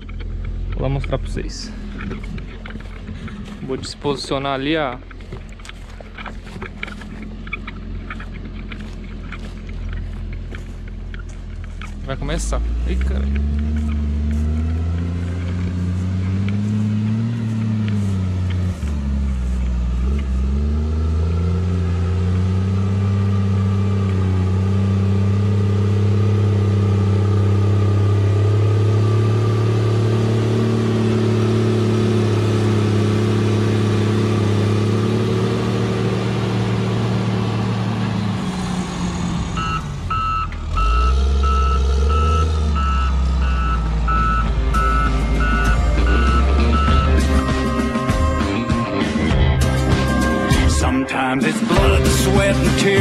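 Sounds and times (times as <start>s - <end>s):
heavy machine engine working: 0.0s - 53.0s
reversing alarm beeping: 39.6s - 50.9s.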